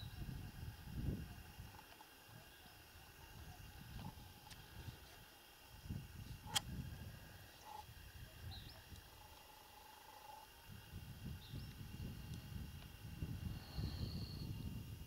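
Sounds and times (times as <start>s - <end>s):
wind rumble on microphone: 0.0s - 9.2s, 10.6s - 15.0s
sharp click: 6.5s - 6.7s.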